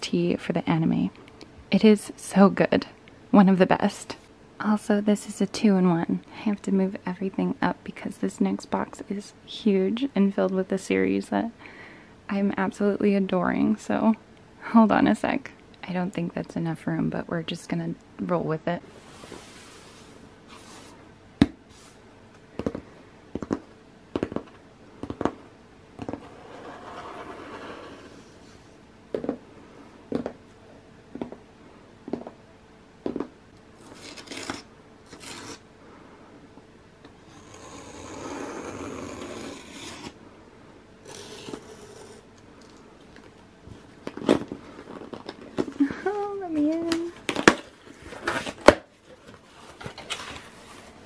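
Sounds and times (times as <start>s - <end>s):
cardboard scraping and rubbing: 26.0s - 28.8s
scratching at packing tape: 33.8s - 35.6s, 37.3s - 40.2s, 41.0s - 42.8s.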